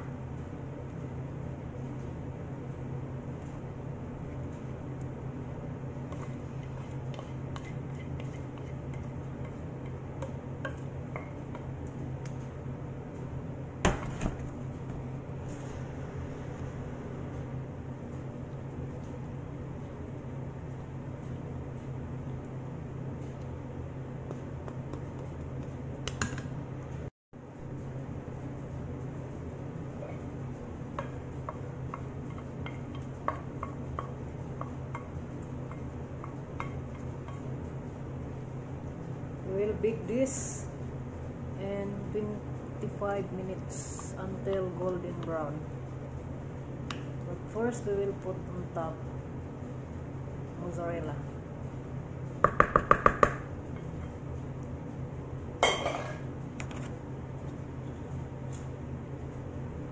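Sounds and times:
steady low hum: 0:00.0 - 0:59.9
spoon scraping a bowl: 0:06.1 - 0:09.6.

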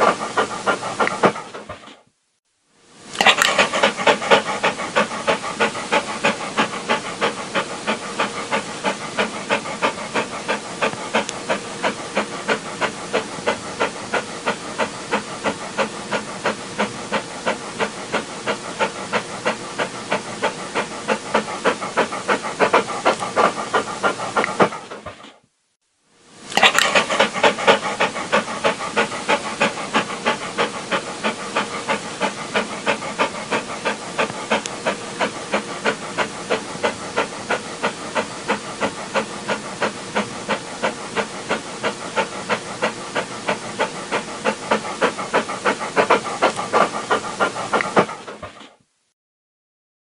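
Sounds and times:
dog panting rapidly: 0:00.0 - 0:02.1, 0:03.2 - 0:25.4, 0:26.5 - 0:48.9.

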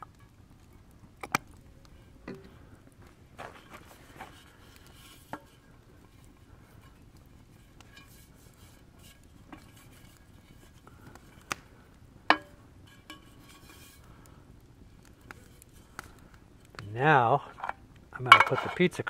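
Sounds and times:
metal pans clinking and knocking: 0:17.6 - 0:18.8.

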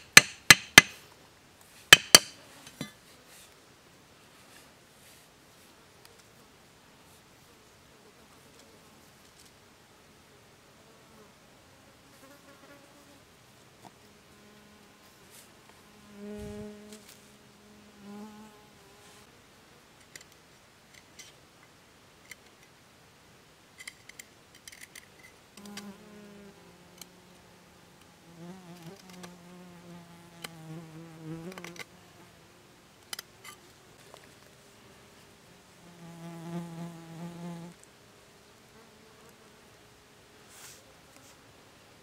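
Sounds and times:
machete tapping a stick: 0:00.1 - 0:01.0, 0:01.9 - 0:02.4
flying insect buzzing: 0:14.0 - 0:19.3, 0:25.6 - 0:32.6, 0:33.4 - 0:37.8.

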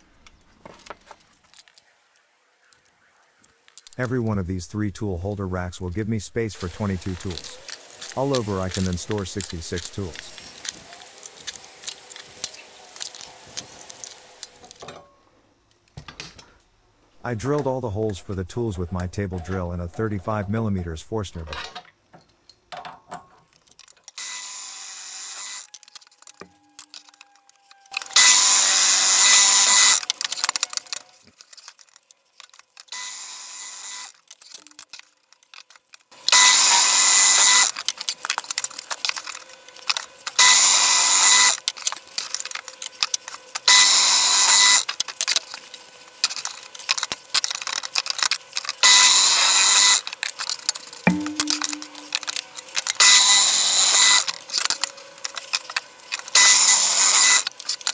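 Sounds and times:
drill press boring into wood: 0:24.2 - 0:31.4, 0:32.9 - 0:34.2, 0:36.2 - 0:45.6, 0:46.2 - 0:50.9, 0:53.0 - 0:57.9.

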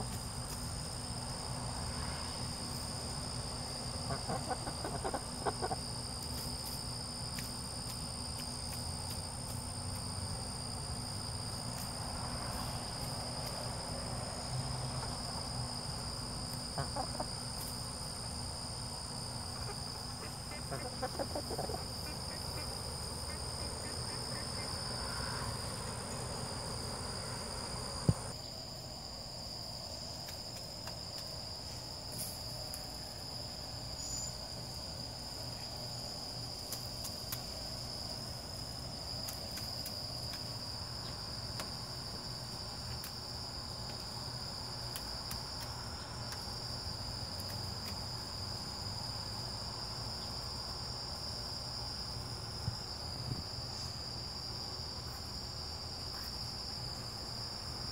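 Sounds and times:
crickets trilling: 0:00.0 - 0:57.9.

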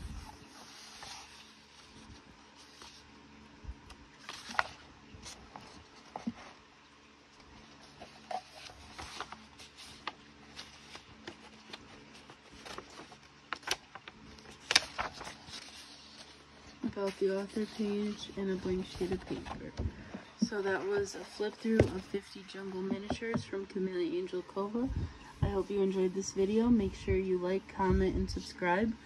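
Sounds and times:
paper pages rustling: 0:00.0 - 0:03.1, 0:03.7 - 0:06.6, 0:07.3 - 0:23.2
sharp paper crackles: 0:04.2 - 0:06.4, 0:07.7 - 0:19.6.

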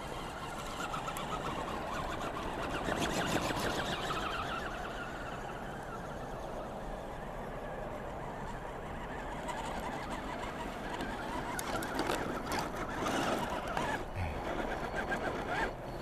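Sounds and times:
toy truck motors whining: 0:00.0 - 0:16.0.

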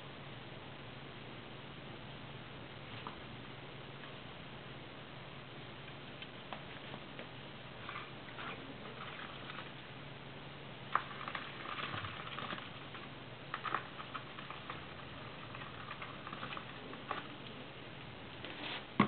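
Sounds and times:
low steady hum: 0:00.0 - 0:19.0
small clicks taps and scratches: 0:10.9 - 0:18.5.

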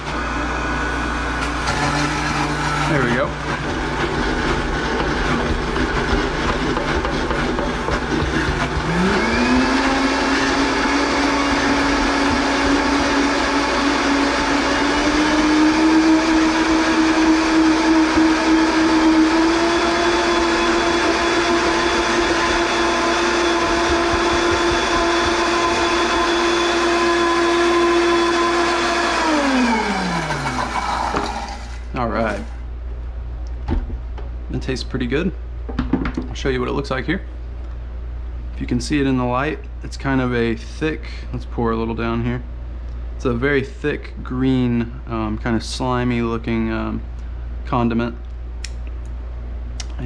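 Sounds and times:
blender motor running: 0:00.0 - 0:32.6.

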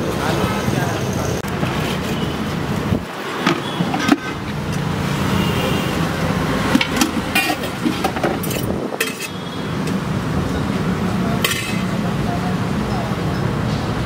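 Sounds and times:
roadside traffic noise: 0:00.0 - 0:14.0
metal pots and lids clinking: 0:03.4 - 0:04.9, 0:06.6 - 0:09.5, 0:11.4 - 0:12.0.

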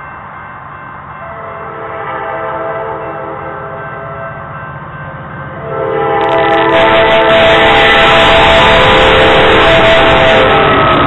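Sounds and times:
train engines rumbling: 0:00.0 - 0:11.0
locomotive air horn: 0:01.4 - 0:04.3, 0:05.6 - 0:11.0.

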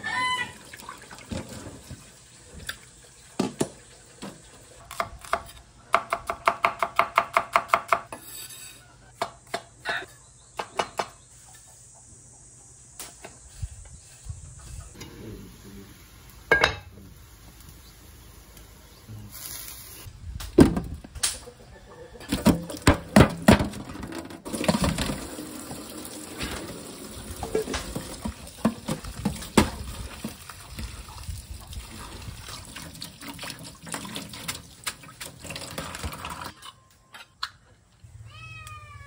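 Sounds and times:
water splashing into colander: 0:00.5 - 0:04.8, 0:24.4 - 0:36.5
kitten meowing: 0:38.3 - 0:39.0.

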